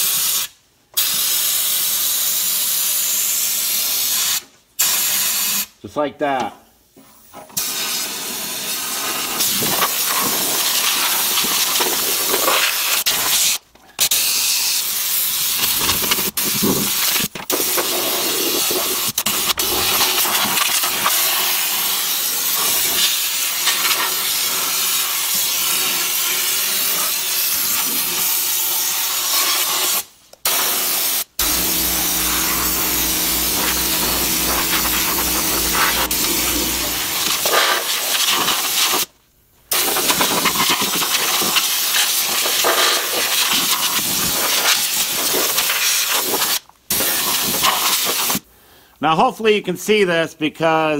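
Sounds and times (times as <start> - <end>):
spray gun hissing: 31.4 - 37.6
steady low hum: 31.4 - 37.6.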